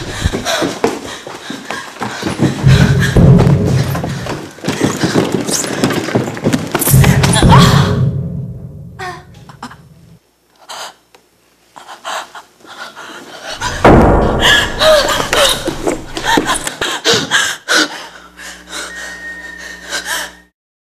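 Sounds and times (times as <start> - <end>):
woman gasping and panting: 0.0 - 5.8, 7.0 - 8.1, 11.9 - 19.0
steady low drone: 2.6 - 4.4, 6.9 - 10.2
heavy thump: 2.6 - 4.5, 6.9 - 9.8, 13.6 - 16.6
woman crying out: 7.1 - 8.1, 8.9 - 9.8, 14.4 - 16.6.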